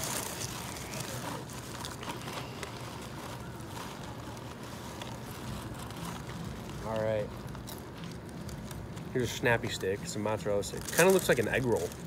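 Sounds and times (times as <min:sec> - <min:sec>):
low background hum: 0:00.0 - 0:12.0
paper bag rustling: 0:00.0 - 0:12.0.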